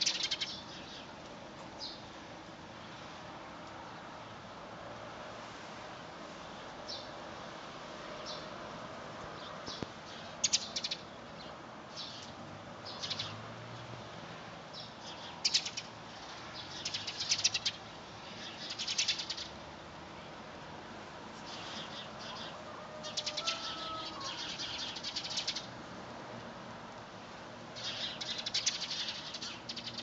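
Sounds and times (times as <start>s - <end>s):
small birds chirping: 0.0s - 1.2s, 9.4s - 13.4s, 14.7s - 19.6s, 21.4s - 25.7s, 27.8s - 30.0s
steady background hiss: 0.0s - 30.0s.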